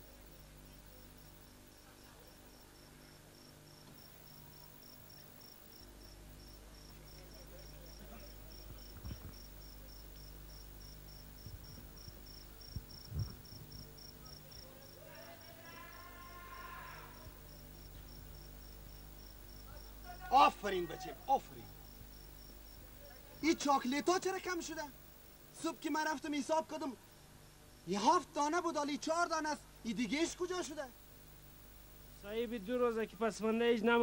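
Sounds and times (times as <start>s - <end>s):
cricket chirping: 0.0s - 26.2s
low electrical hum: 0.0s - 34.0s
person speaking: 19.7s - 21.8s.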